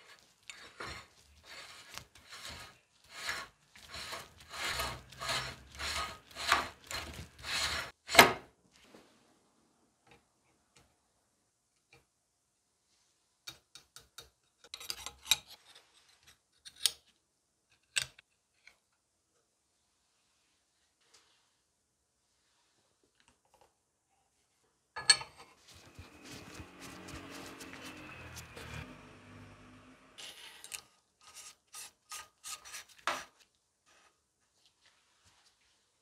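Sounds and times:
metal threads rasping: 0.0 - 8.0.

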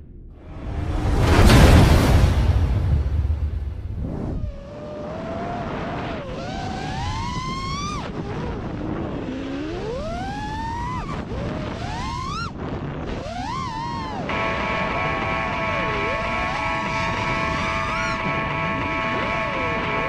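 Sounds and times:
quadcopter motors whining: 9.2 - 20.0
steady cluster of tones: 14.3 - 20.0.

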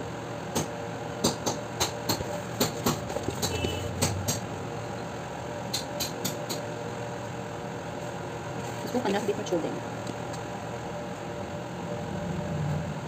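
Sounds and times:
steady low hum: 0.0 - 13.0
sharp knocks and taps: 0.6 - 4.4.

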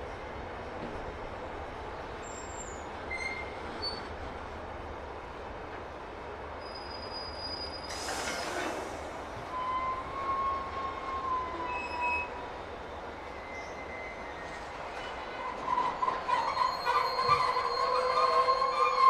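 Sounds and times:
freight train rumbling: 0.0 - 19.0
train wheels squealing: 2.2 - 4.2, 6.6 - 19.0.

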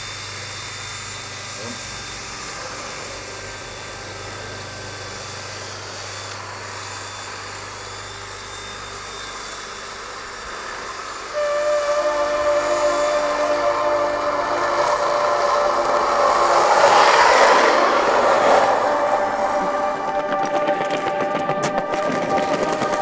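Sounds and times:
held chord of tones: 11.3 - 23.0
skateboard wheels rolling on tarmac: 16.2 - 23.0.

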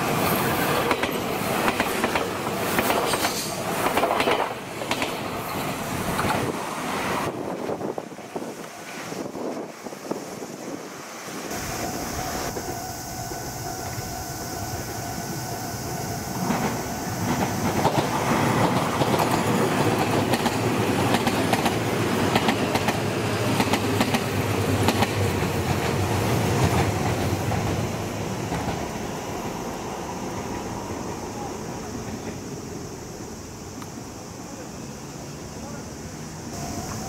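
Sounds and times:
electric train passing: 0.0 - 37.0
train wheels clacking over rail joints: 0.2 - 6.6, 16.4 - 27.8.

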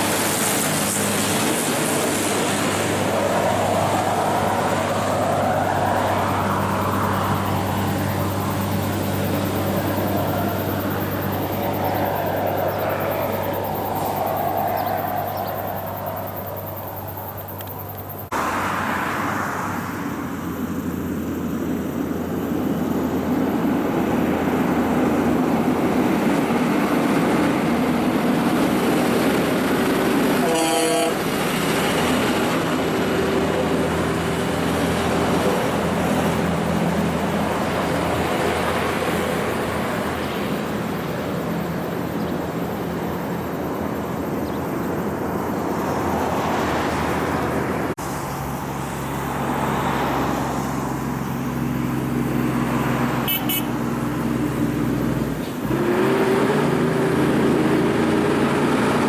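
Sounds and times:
truck horn toot: 30.4 - 31.3, 53.2 - 53.9.

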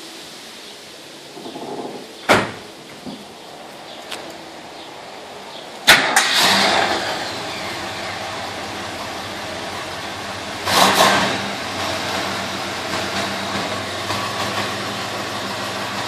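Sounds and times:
car engine starting and running: 4.3 - 16.0
exhaust bang: 5.9 - 16.0.

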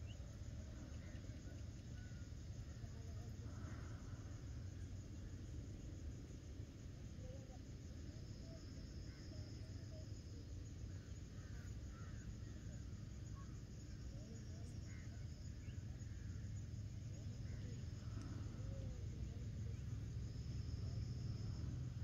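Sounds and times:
high-pitched insect trill: 0.0 - 22.0.

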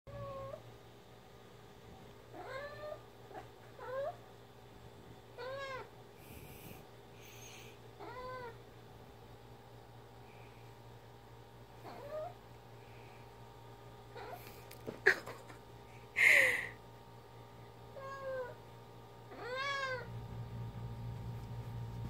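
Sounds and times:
cat meowing: 19.3 - 20.1.

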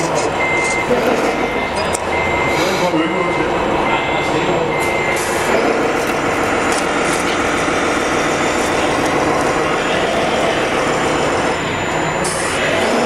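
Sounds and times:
model truck motor running: 5.1 - 13.0.

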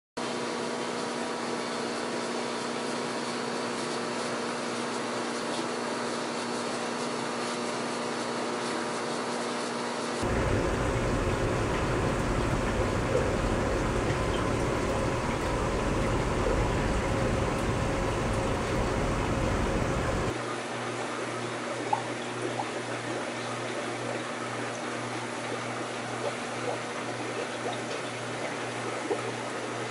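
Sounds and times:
aquarium equipment humming: 10.2 - 20.4.

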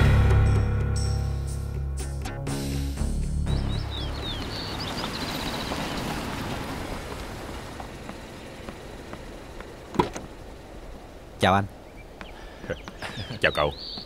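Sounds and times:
birds chirping: 3.0 - 14.0
car pulling up: 3.0 - 14.0.

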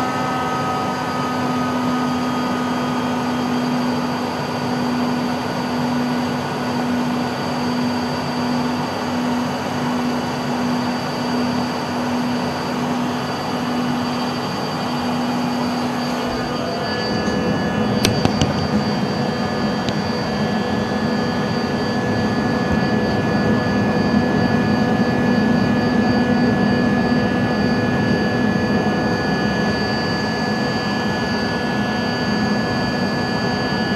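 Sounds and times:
jet engines heard inside cabin: 0.0 - 33.9.

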